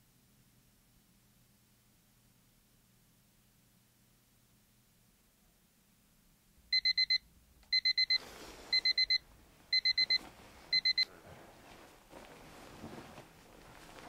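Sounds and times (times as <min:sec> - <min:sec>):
alarm clock beeping: 0:06.7 - 0:11.1.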